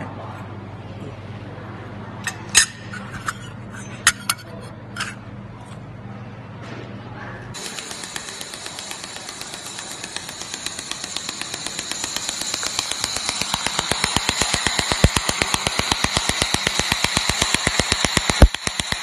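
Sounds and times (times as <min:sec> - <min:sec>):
high whine and hiss: 0:07.6 - 0:19.0
laser welder rapid ticking: 0:07.6 - 0:19.0.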